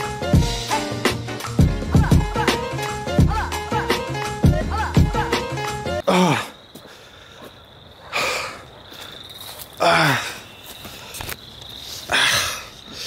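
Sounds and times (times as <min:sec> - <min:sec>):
man groaning: 0:06.0 - 0:06.6.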